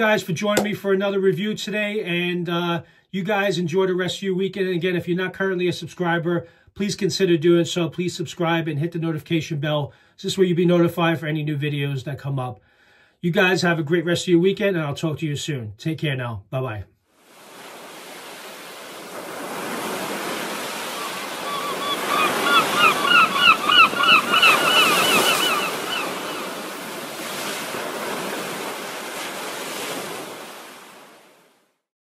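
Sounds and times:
surf washing on shore: 17.1 - 31.7
bird calls: 20.7 - 26.8.

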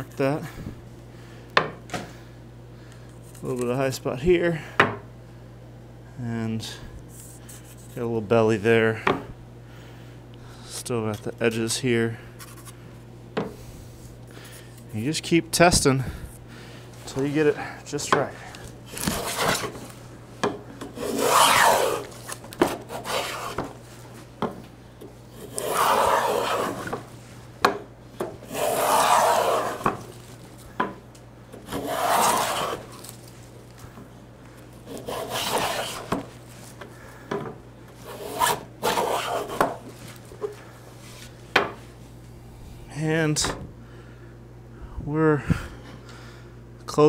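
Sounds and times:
hand plane rasping on wood: 19.0 - 19.7, 21.0 - 23.7, 25.3 - 27.1, 28.4 - 30.0, 31.6 - 33.0, 34.9 - 36.3, 38.0 - 39.8.

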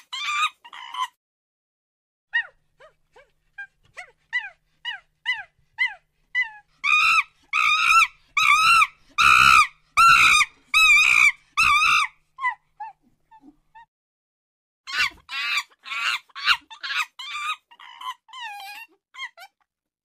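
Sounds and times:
monkey calling: 6.8 - 12.1.

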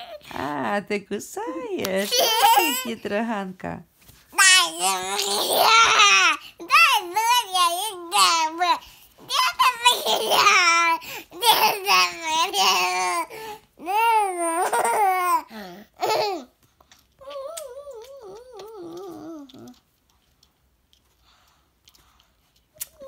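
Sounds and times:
toddler babbling and laughing: 0.0 - 0.3, 2.0 - 3.0, 4.4 - 16.5
toddler humming with pacifier: 17.2 - 19.8.

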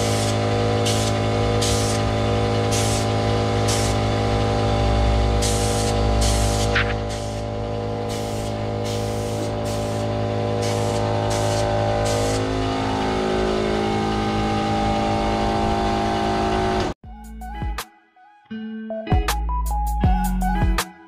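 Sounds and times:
spray gun hissing: 0.0 - 4.0, 5.4 - 12.5
motor hum: 0.0 - 17.0.

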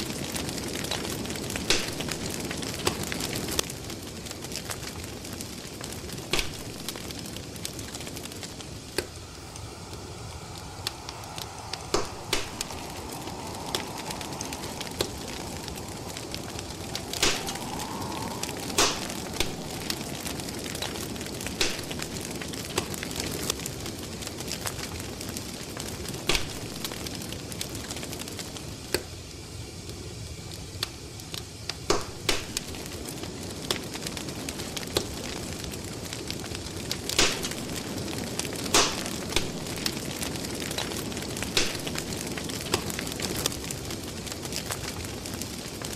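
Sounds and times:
crackling wood fire: 0.0 - 45.9.

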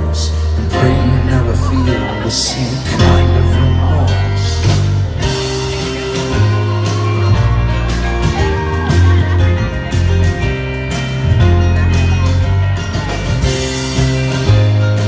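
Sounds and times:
guitar: 0.0 - 15.0
rock folk band playing: 0.0 - 15.0
upright double bass notes: 0.0 - 15.0
drums beat: 4.6 - 15.0.

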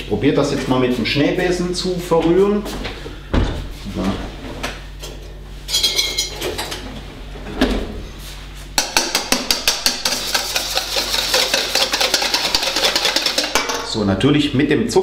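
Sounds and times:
utensils clattering: 5.0 - 6.9, 8.8 - 14.0
whisk beating in a metal bowl: 8.8 - 14.0.

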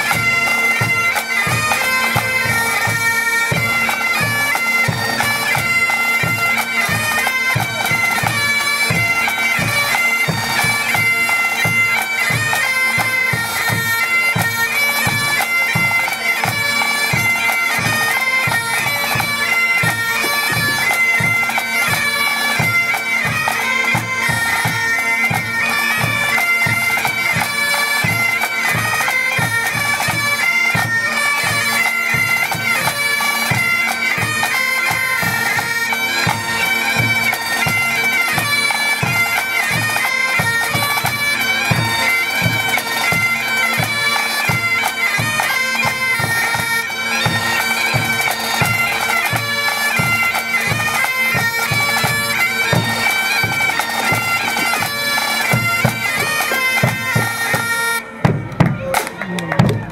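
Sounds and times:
bagpipes playing a tune: 0.0 - 59.9
drums keeping a beat: 17.8 - 27.5, 50.0 - 59.9.

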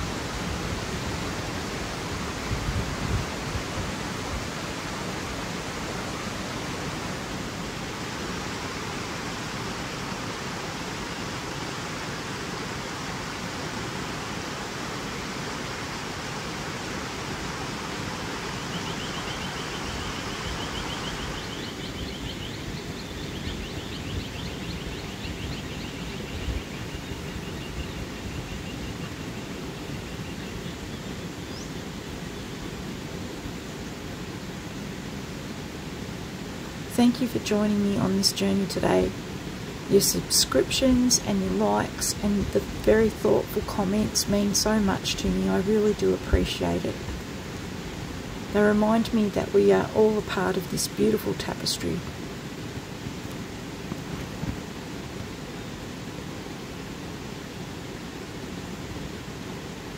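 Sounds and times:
bird singing high trills: 18.6 - 31.8.

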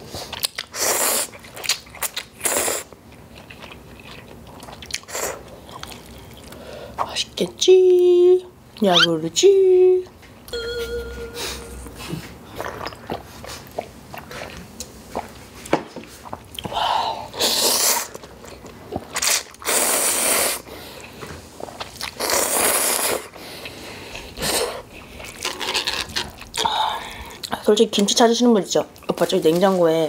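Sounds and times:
soft chewing: 1.3 - 7.1, 20.7 - 27.6.

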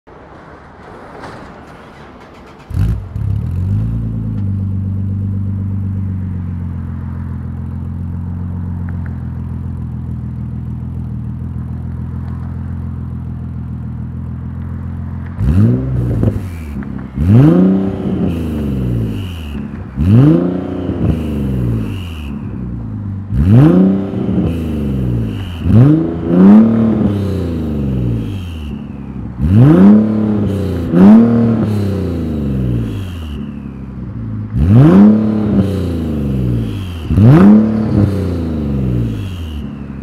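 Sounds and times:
car engine starting and idling: 0.1 - 40.0
engine revving blips: 15.4 - 40.0.

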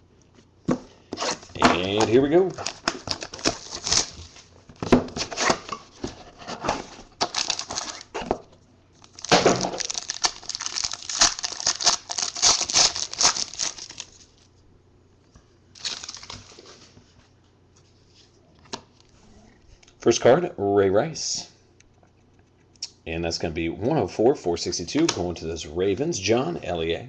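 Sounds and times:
foil pack crinkling and tearing: 1.2 - 4.4, 7.1 - 8.2, 9.0 - 14.5, 15.8 - 16.7.

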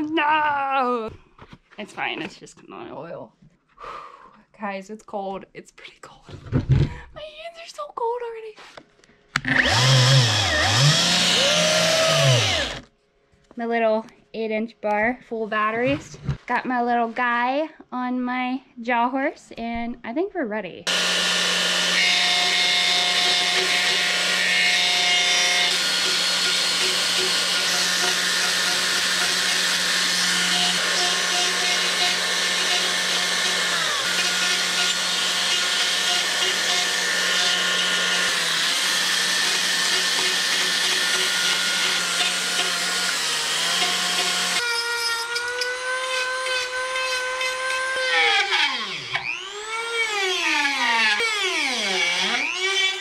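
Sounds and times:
electric chainsaw cutting wood: 9.4 - 12.9, 20.9 - 53.0
rotary carving tool whine: 9.4 - 12.9, 20.9 - 53.0.

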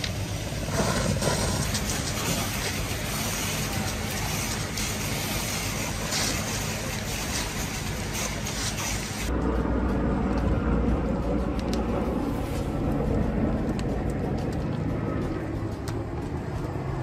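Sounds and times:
fire hose water jet hissing: 0.0 - 9.3
house fire crackling and popping: 0.0 - 17.0.

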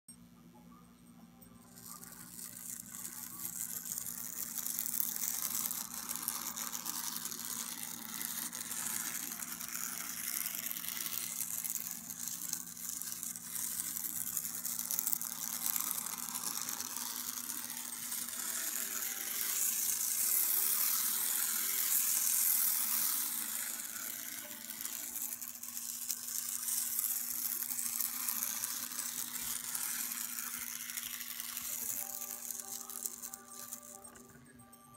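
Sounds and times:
model train motor whirring: 1.6 - 34.2.

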